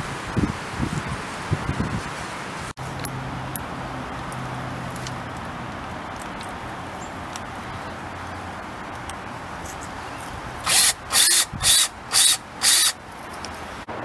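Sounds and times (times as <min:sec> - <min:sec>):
cordless drill short bursts: 0:10.6 - 0:13.0.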